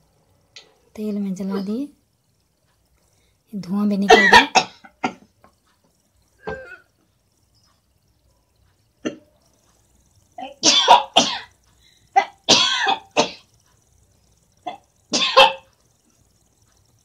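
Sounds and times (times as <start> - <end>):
woman coughing hard: 4.1 - 5.2, 10.6 - 11.5, 12.2 - 13.5, 14.7 - 15.6.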